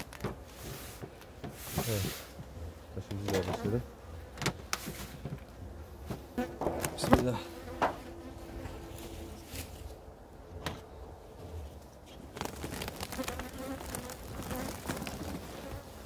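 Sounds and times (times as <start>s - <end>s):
honeybees buzzing: 5.8s - 10.2s, 12.4s - 16.0s.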